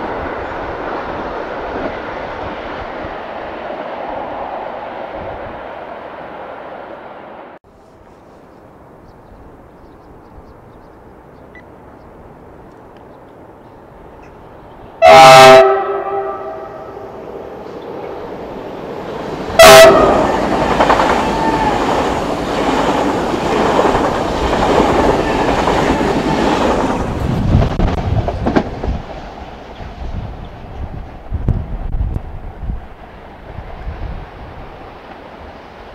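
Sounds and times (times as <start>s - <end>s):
train rushing past: 0.0s - 7.6s, 14.9s - 35.9s
train horn: 15.0s - 17.2s, 19.6s - 21.9s.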